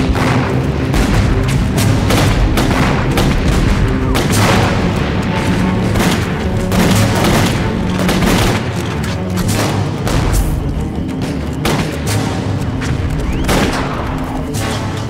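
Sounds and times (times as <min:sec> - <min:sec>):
explosions: 0:00.0 - 0:10.9
orchestral music score: 0:00.0 - 0:15.0
rifle shots: 0:00.0 - 0:15.0.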